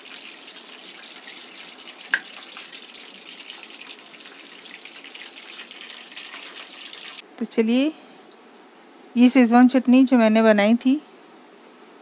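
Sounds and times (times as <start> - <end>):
oil sizzling and crackling: 0.0 - 7.2.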